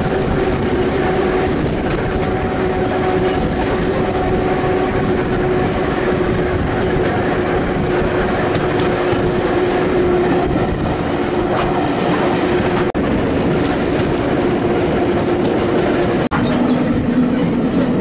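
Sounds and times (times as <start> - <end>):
clickety-clack over rail joints: 0.0 - 18.0
train wheels rumbling on rails: 0.0 - 18.0.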